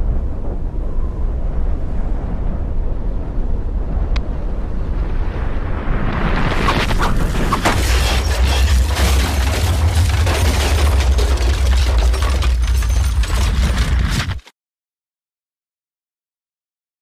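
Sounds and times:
explosion rumble: 0.0 - 14.4
hissing roar with crackles: 2.7 - 8.1.

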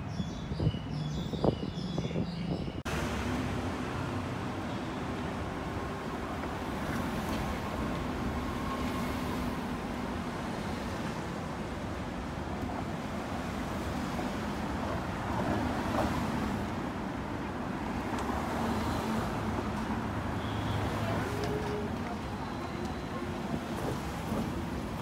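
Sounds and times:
cars driving past: 2.9 - 8.2.

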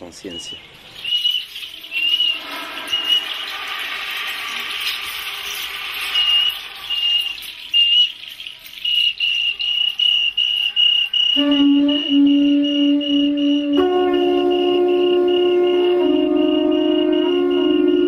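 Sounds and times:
insect chirping: 0.0 - 13.8
broad hiss: 0.8 - 8.7.

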